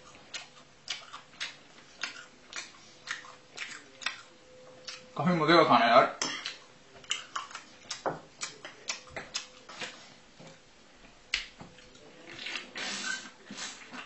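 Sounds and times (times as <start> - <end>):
wet open-mouthed chewing: 0.0 - 5.1, 6.4 - 10.0, 11.3 - 14.0.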